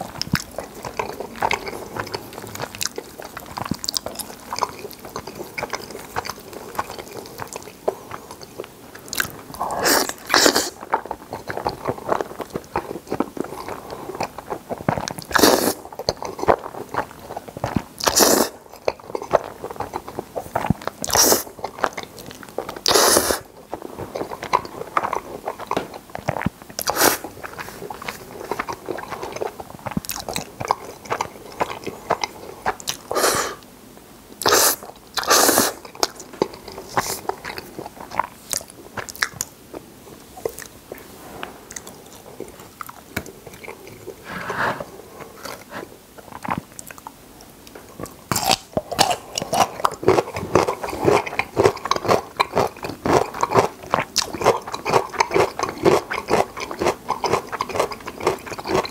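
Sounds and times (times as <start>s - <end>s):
slurping: 0.0s - 33.6s, 40.4s - 47.0s
wet chewing: 0.0s - 33.7s, 34.4s - 41.0s, 41.7s - 58.9s
crisp crunching of pickle: 45.3s - 58.9s.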